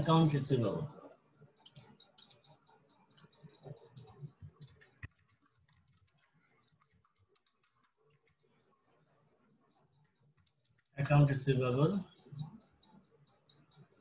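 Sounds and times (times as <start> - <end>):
computer keyboard typing: 1.6 - 8.4, 9.7 - 14.0.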